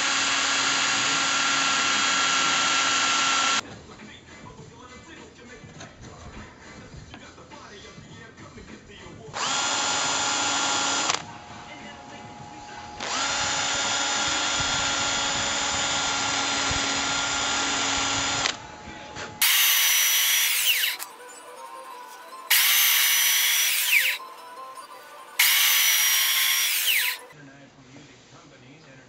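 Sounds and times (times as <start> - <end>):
cordless drill spinning buffing wheel: 0.0 - 3.6, 9.4 - 11.3, 13.0 - 18.6, 19.4 - 27.3
power tool whining: 0.0 - 3.6, 9.4 - 11.7, 12.4 - 27.3.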